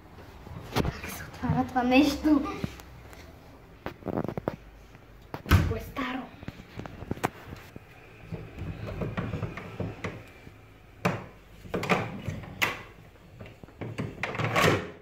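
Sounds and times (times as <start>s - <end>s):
lock and door clacking: 13.9s - 15.0s.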